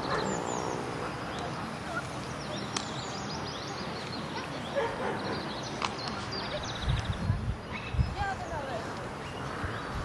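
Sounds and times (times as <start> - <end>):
dog barking: 0.0 - 0.4, 4.4 - 5.4
small birds chirping: 0.0 - 10.0
steady background noise: 0.0 - 10.0.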